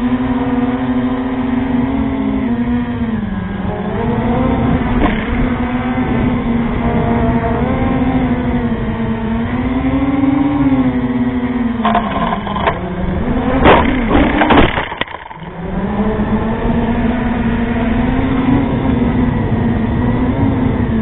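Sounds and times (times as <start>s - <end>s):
drone motors whining: 0.0s - 21.0s
clicks: 11.8s - 12.8s
drone knocking on ground: 11.8s - 12.9s.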